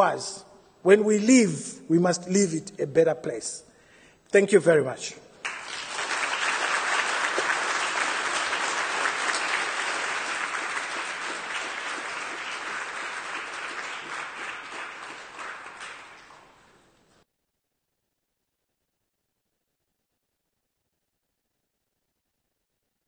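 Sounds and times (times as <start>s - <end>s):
audience applauding: 5.4s - 16.8s.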